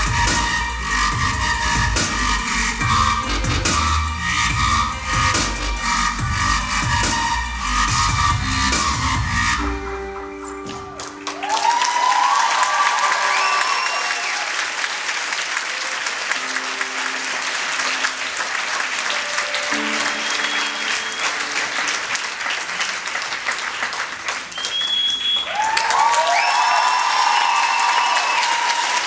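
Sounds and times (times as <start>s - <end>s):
high whistle: 0.0s - 9.8s, 13.1s - 14.5s, 19.6s - 21.9s, 24.5s - 29.0s
audience applauding: 9.7s - 29.0s
cheering and whoops: 10.8s - 15.9s, 24.7s - 29.0s.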